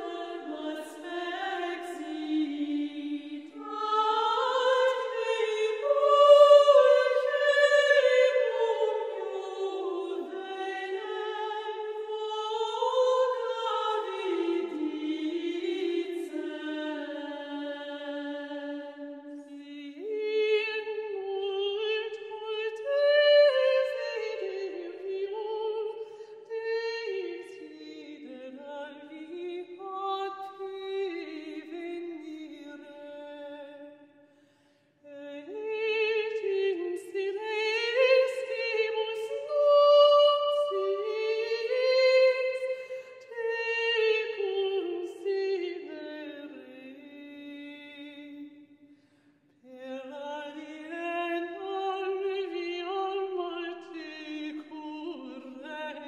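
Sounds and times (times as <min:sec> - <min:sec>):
woman singing unaccompanied: 0:00.0 - 0:18.6, 0:19.6 - 0:25.9, 0:35.1 - 0:42.6, 0:43.2 - 0:48.4, 0:49.7 - 0:56.0.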